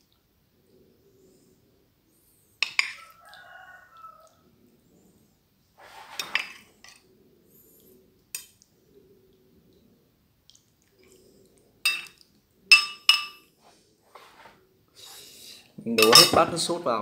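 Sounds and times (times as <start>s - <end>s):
metal spoon clinking ceramic bowl: 11.9s - 13.5s, 16.0s - 16.6s.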